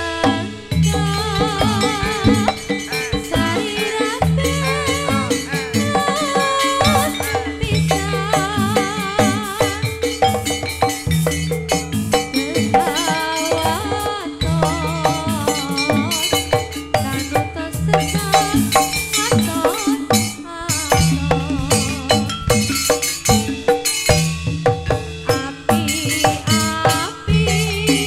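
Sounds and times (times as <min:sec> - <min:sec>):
drums: 0:00.0 - 0:28.0
traditional ensemble music: 0:00.0 - 0:28.0
wavering melodic line: 0:00.0 - 0:28.0.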